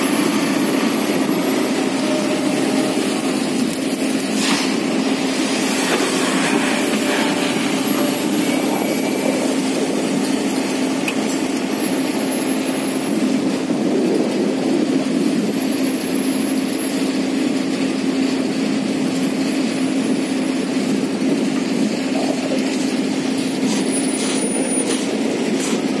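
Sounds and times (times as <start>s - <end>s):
excavator engine humming: 0.0s - 26.0s.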